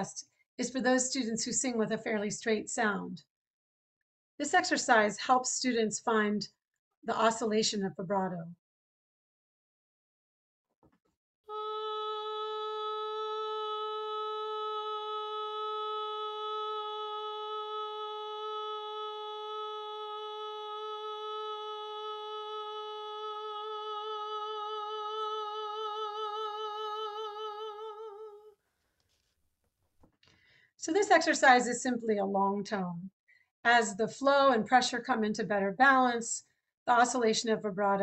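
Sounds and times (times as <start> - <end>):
woman singing long tone: 11.5 - 28.5.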